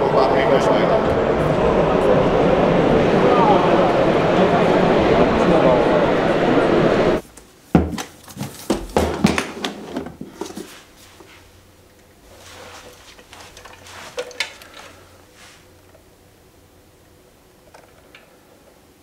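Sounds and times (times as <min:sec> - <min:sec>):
rustling of handling: 0:07.2 - 0:16.0.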